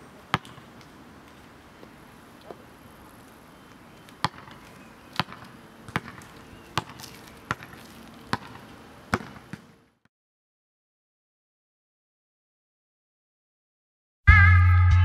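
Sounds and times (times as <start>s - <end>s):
basketball bouncing on asphalt: 0.3s - 2.7s, 3.6s - 10.1s.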